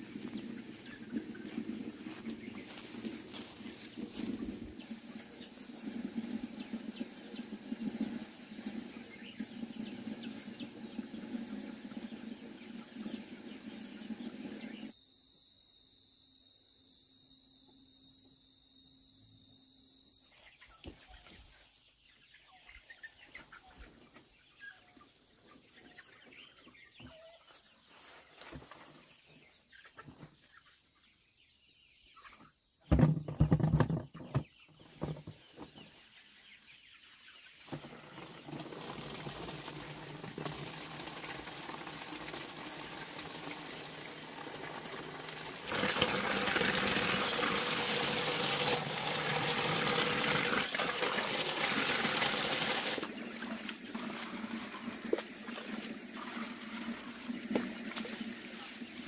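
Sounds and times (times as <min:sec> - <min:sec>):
high insect trill: 0:00.0 - 0:20.4, 0:51.9 - 0:59.0
hose water splashing into bucket: 0:37.6 - 0:59.0.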